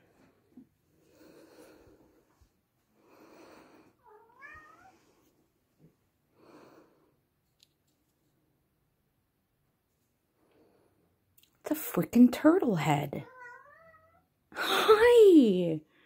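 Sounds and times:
soft breathy sounds: 0.0 - 7.4.

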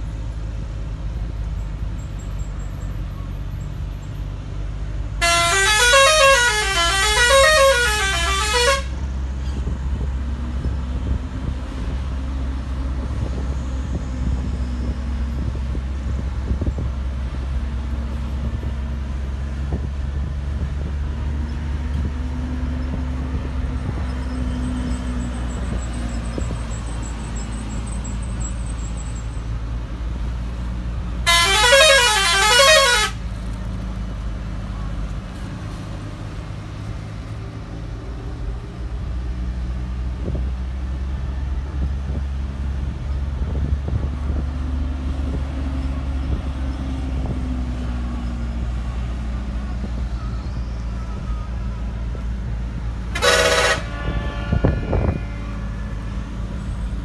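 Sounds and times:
engine droning: 0.0 - 57.0
bus musical horn warbling: 5.1 - 10.0, 28.8 - 33.4, 49.9 - 57.0.

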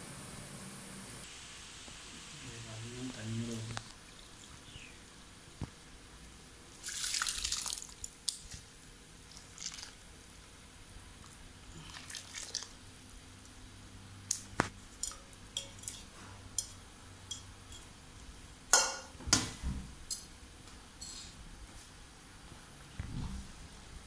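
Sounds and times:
rice squishing: 6.8 - 8.7, 9.3 - 10.1, 11.6 - 12.8
ladle clinking against metal pot: 18.7 - 19.1.

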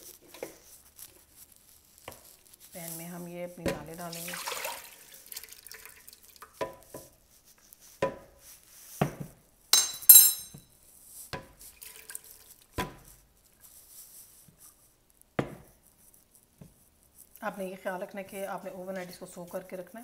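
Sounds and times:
cookware knocking and clinking: 9.8 - 10.6.

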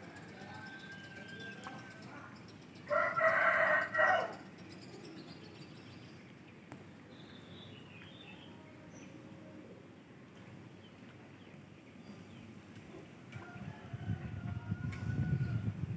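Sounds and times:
rooster crowing: 2.9 - 4.4, 13.4 - 15.7.

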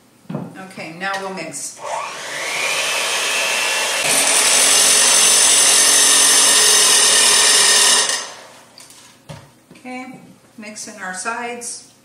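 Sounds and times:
electric mixer whirring in batter: 1.8 - 8.7.

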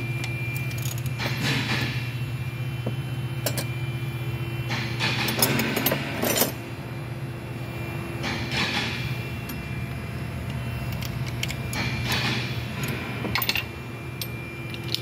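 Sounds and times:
metal tools clinking: 3.4 - 3.7, 5.0 - 6.6, 10.9 - 15.0.

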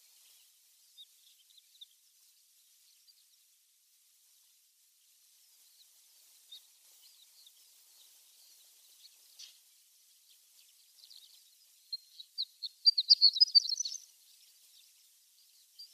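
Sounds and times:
lark twittering song: 6.5 - 15.9.

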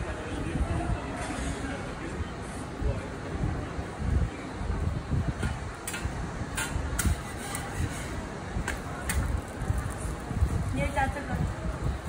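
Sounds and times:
metal spatula scraping griddle: 6.6 - 8.2.

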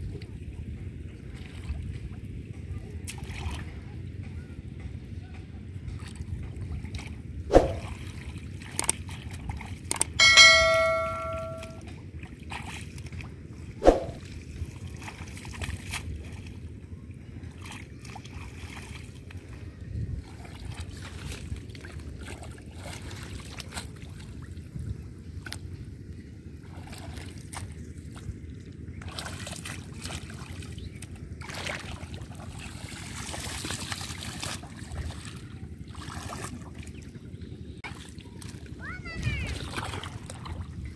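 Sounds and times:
shallow water sloshing and trickling: 0.0 - 3.9, 6.0 - 10.0, 12.2 - 40.9
ringing bell-like tone: 10.2 - 11.8.

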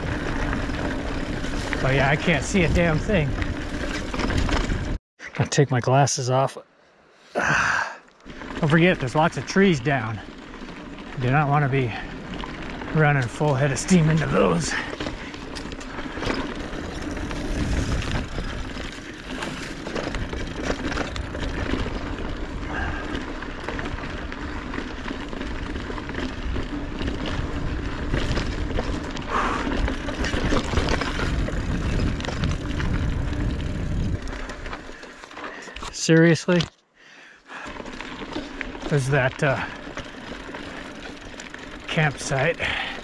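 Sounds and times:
bike knocks and rattles: 0.0 - 5.0, 8.4 - 35.2, 37.7 - 43.0
bike tyres rolling on dirt: 0.0 - 5.0, 7.4 - 43.0
wind on microphone: 29.7 - 34.4.

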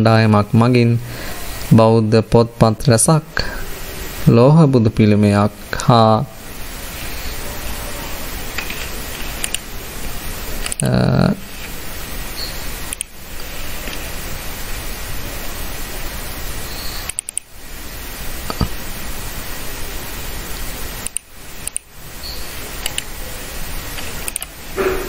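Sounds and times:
steady background hiss: 0.0 - 25.0
sharp click: 8.6 - 9.6, 17.1 - 17.5, 21.0 - 21.9, 22.8 - 23.1, 24.0 - 25.0.

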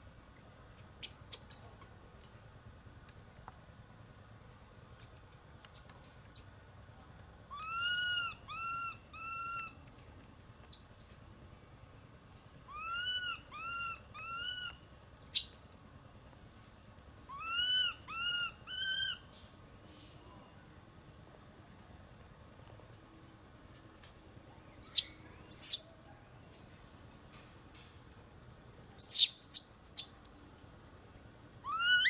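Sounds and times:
high falling bird chirps: 24.8 - 25.8, 28.9 - 30.2
bird whistling call: 24.8 - 25.9, 29.0 - 30.1, 31.6 - 32.0.

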